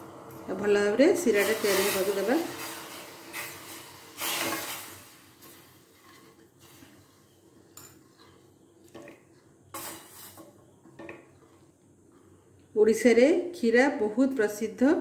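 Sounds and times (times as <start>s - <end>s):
wooden spatula scraping saucepan: 1.4s - 12.5s.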